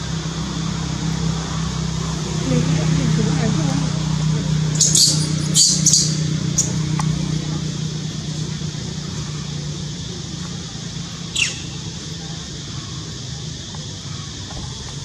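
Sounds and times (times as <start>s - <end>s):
low motor hum: 0.0s - 15.0s.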